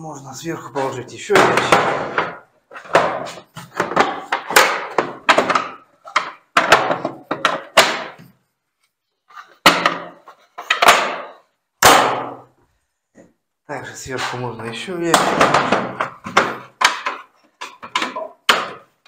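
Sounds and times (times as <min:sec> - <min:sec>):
plastic tool boxes clunking: 0:00.8 - 0:08.3, 0:15.1 - 0:19.0.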